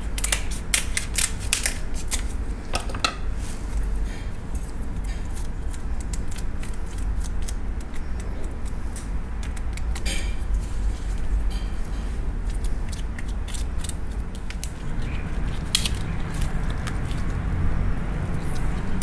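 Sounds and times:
scissors snipping crab shells: 0:00.1 - 0:02.3, 0:05.0 - 0:10.4, 0:12.4 - 0:17.4.

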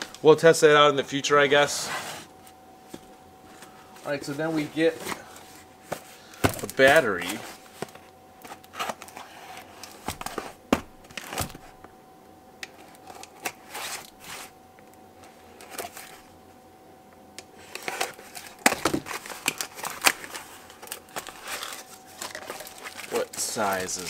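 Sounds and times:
cardboard scraping and rustling: 0:01.6 - 0:11.8, 0:12.9 - 0:14.6, 0:15.6 - 0:16.3, 0:17.6 - 0:24.0.

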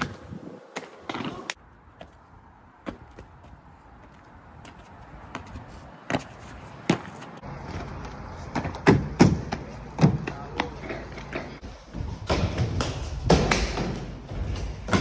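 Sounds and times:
hands slapping on walls: 0:12.3 - 0:15.0.

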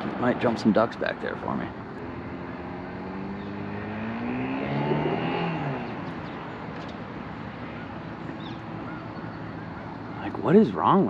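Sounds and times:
outboard motor passing: 0:01.9 - 0:10.1.

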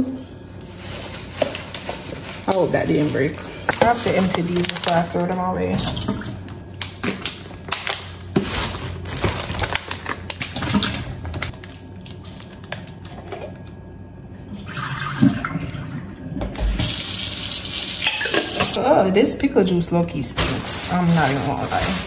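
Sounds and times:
liquid pouring into a sink: 0:14.5 - 0:18.8.

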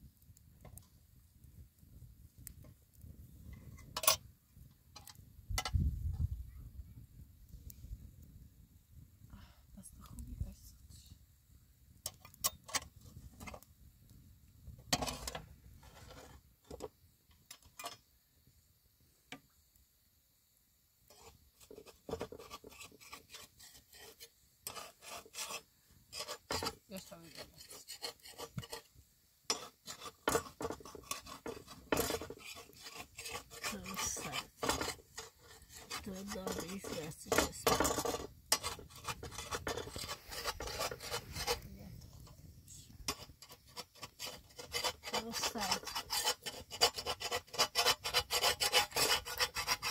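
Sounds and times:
metal spatula scraping a griddle: 0:03.8 - 0:04.2, 0:14.9 - 0:16.9, 0:21.1 - 0:42.2, 0:43.0 - 0:49.9.

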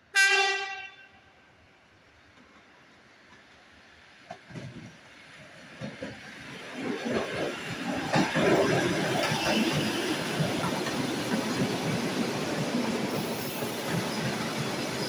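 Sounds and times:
electric train passing: 0:02.0 - 0:15.0
train wheels knocking on track: 0:06.8 - 0:15.0.

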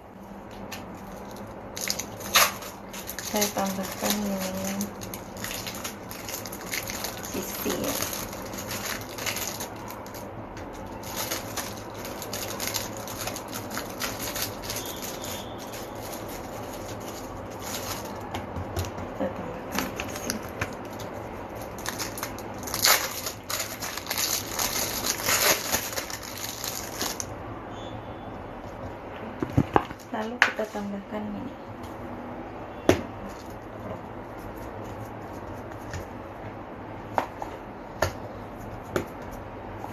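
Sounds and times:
cling film crinkling: 0:00.4 - 0:18.3, 0:19.9 - 0:27.3.

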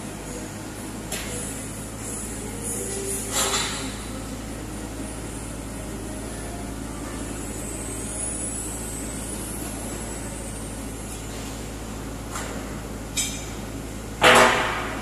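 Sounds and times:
excavator engine idling: 0:00.0 - 0:15.0.

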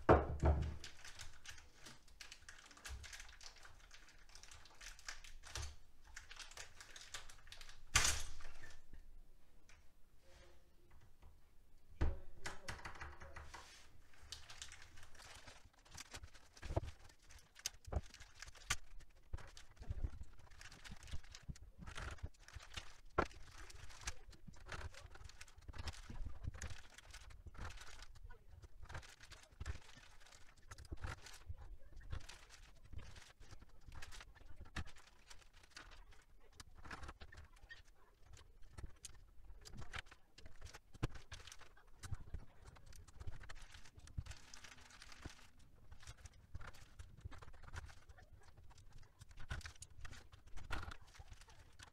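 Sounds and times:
plastic bags rustling: 0:13.5 - 0:51.9.

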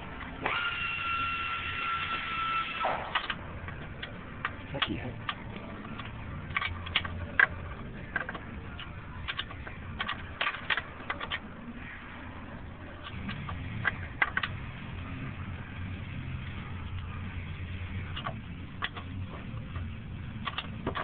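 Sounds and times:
low steady hum: 0:00.0 - 0:21.0
metallic clicks and scrapes: 0:02.8 - 0:21.0.

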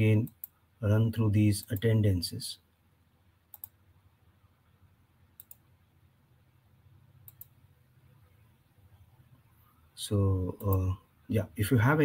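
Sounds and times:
low room hum: 0:00.0 - 0:12.0
computer mouse clicks: 0:03.5 - 0:03.8, 0:05.4 - 0:05.7, 0:07.2 - 0:07.6.

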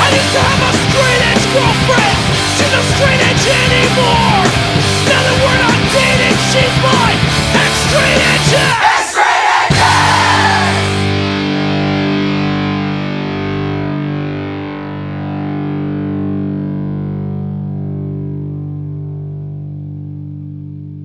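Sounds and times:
punk rock song: 0:00.0 - 0:21.0
distorted electric guitar chord ringing: 0:10.4 - 0:21.0.

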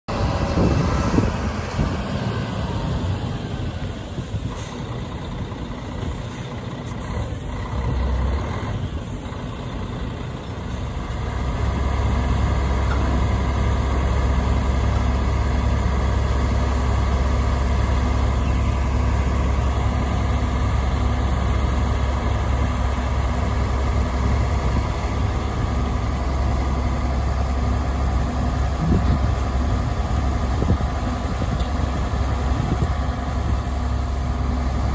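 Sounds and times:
truck diesel engine running: 0:00.1 - 0:34.9.

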